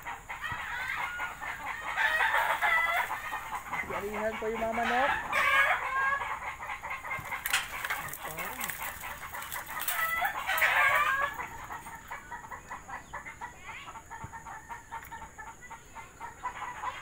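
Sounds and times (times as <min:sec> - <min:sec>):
chickens calling: 0:00.0 - 0:17.0
rooster crowing: 0:00.4 - 0:06.2, 0:09.5 - 0:11.6.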